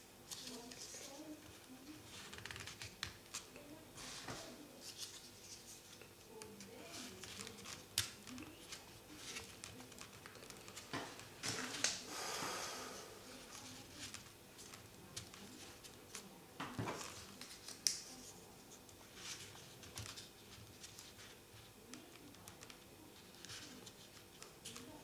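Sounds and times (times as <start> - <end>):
paper rustling and clicking: 2.1 - 3.6, 6.3 - 12.0, 13.6 - 25.0.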